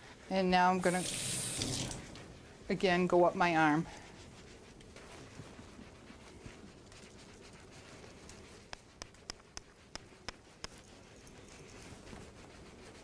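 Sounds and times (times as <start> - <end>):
faint scrubbing of skin: 0.0 - 13.0.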